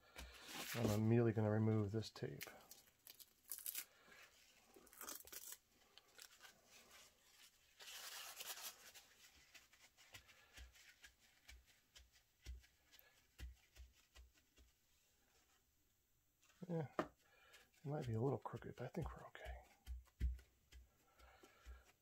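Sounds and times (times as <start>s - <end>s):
paper towel rustling: 0.2s - 1.2s, 6.2s - 15.6s
masking tape crinkling: 2.4s - 11.5s.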